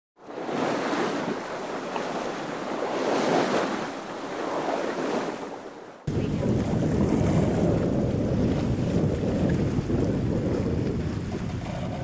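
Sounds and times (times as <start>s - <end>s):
waves: 0.2s - 12.0s
wind rushing: 6.1s - 12.0s.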